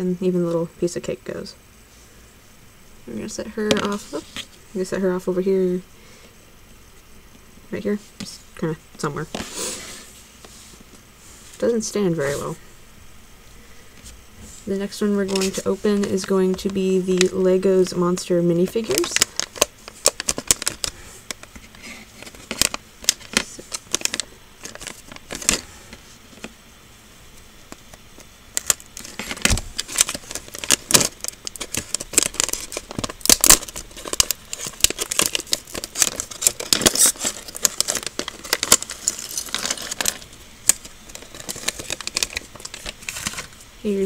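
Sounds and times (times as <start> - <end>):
foil bag crinkling: 14.6 - 26.5, 27.7 - 44.0
plastic parts clicking and rattling: 18.9 - 25.6, 28.5 - 43.5.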